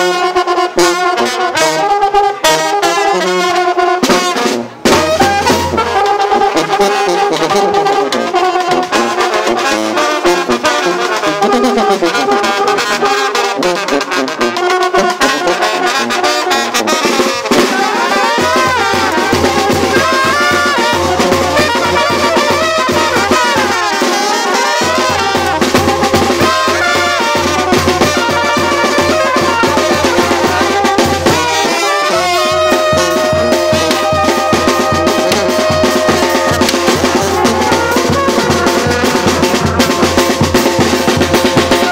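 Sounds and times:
lively dance band music: 0:00.0 - 0:41.9
trumpet and trombone melodies: 0:00.0 - 0:41.9
steady low drum beat: 0:04.8 - 0:08.2, 0:17.4 - 0:41.9.

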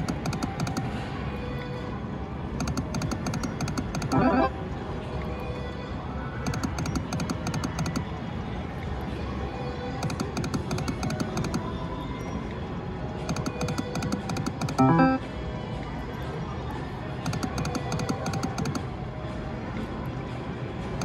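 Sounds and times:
slot machine rapid clicking: 0:02.6 - 0:04.5, 0:13.6 - 0:15.2
slot machine music: 0:04.0 - 0:04.6, 0:14.7 - 0:15.2.

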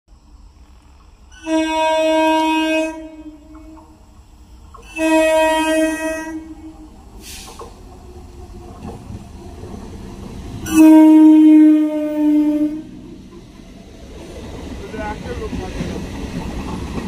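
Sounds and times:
train low rumble: 0:00.1 - 0:17.0
train horn blasts: 0:01.4 - 0:04.0, 0:04.8 - 0:07.0, 0:10.6 - 0:13.0.

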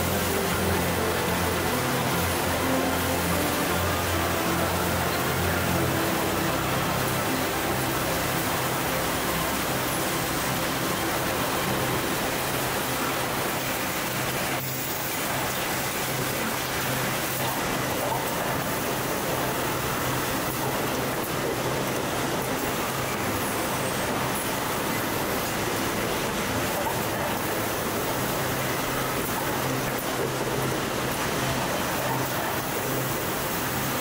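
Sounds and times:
machinery and conveyor belts humming: 0:00.0 - 0:34.0.

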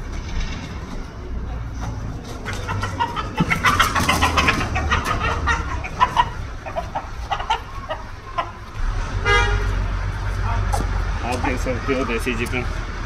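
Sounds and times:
rooster squawking and clucking: 0:02.2 - 0:09.8.

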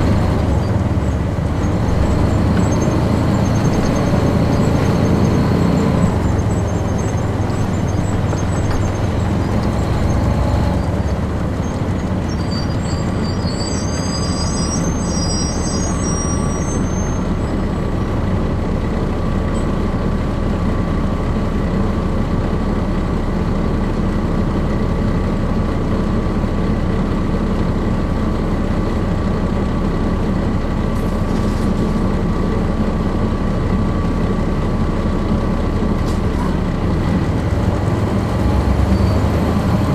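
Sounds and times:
diesel bus engine running: 0:00.0 - 0:39.9
faint high squeaks: 0:11.6 - 0:17.7.

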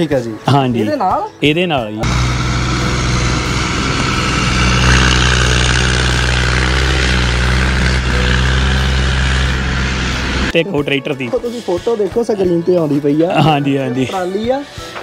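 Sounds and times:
diesel tractor engine running: 0:02.0 - 0:10.6.

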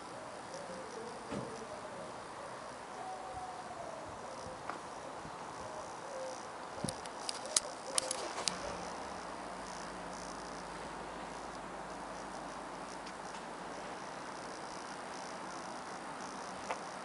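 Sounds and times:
outdoor background noise: 0:00.0 - 0:17.0
short sharp clicks: 0:06.9 - 0:08.6.

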